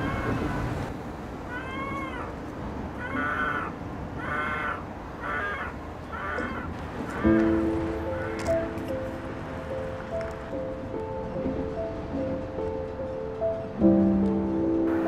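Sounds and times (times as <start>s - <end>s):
kitten meowing in distress: 1.5s - 2.3s
background music: 7.2s - 15.0s.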